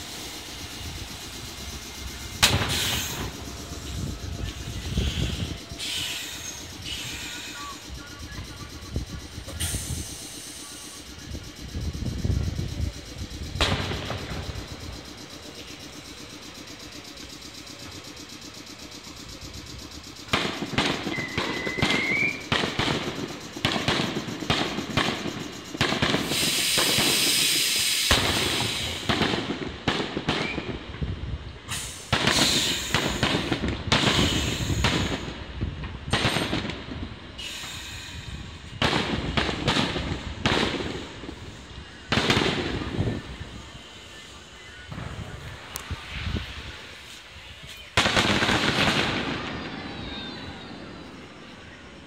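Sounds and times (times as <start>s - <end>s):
electric train humming: 0.0s - 29.1s
rising firework whistle: 0.0s - 31.0s, 31.6s - 52.0s
fireworks bangs and crackling: 0.0s - 52.0s
loud hissing crackle: 0.0s - 52.0s.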